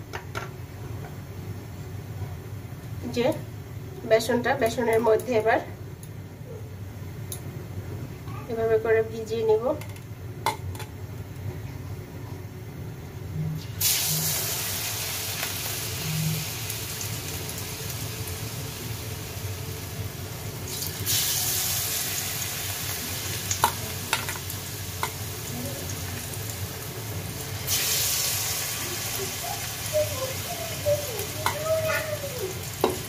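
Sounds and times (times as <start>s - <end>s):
food deep-frying in oil: 13.6s - 33.0s.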